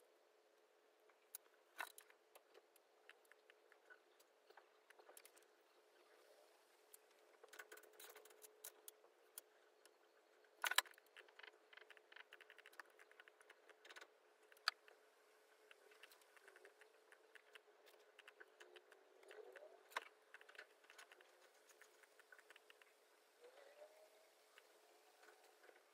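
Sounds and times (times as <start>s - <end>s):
faint steady hum: 0.0s - 25.9s
mouse and keyboard clicking: 10.6s - 15.0s, 15.6s - 22.9s.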